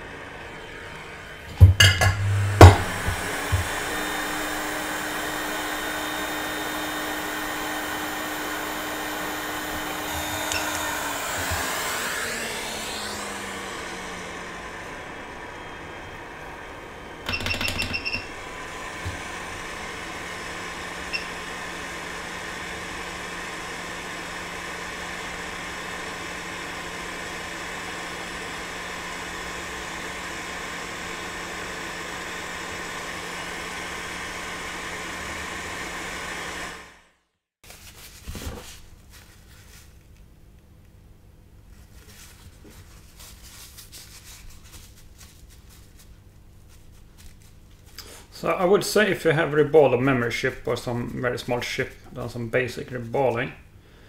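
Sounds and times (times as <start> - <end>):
hot air station blowing: 0.0 - 37.0, 47.8 - 54.0.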